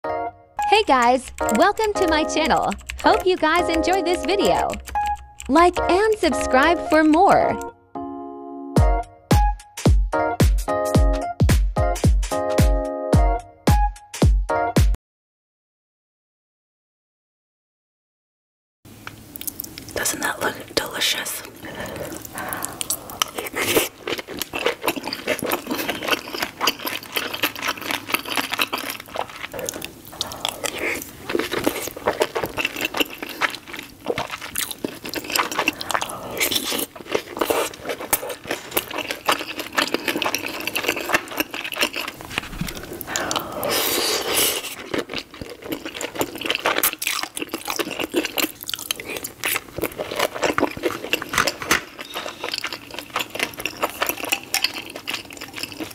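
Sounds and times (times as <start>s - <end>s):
person chewing food: 1.3s - 7.1s, 19.1s - 20.8s, 21.4s - 55.9s
wet mouth smacking and clicks: 2.7s - 6.2s, 19.3s - 20.0s.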